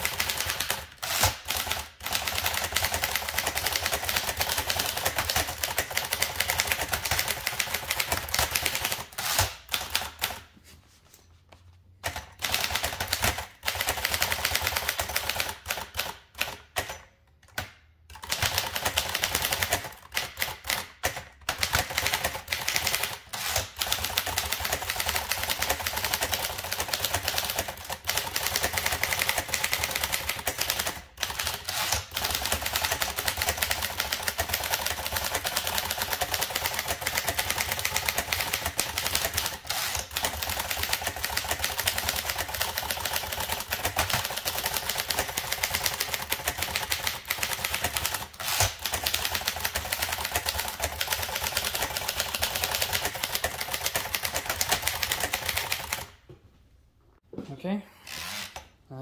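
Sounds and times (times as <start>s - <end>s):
typewriter typing fast: 0.0s - 10.4s, 12.0s - 16.9s, 18.1s - 56.1s.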